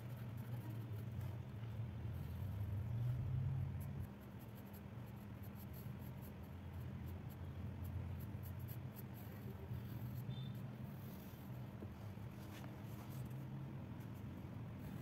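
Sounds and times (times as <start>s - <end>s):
pencil scratching on paper: 0.0s - 1.4s, 3.8s - 13.4s
low steady hum: 0.0s - 15.0s.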